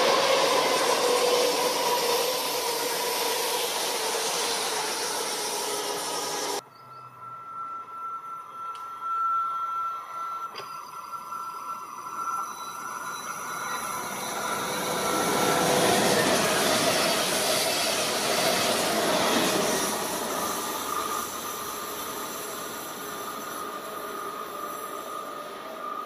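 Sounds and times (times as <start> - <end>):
train wheels on rails: 0.0 - 26.0.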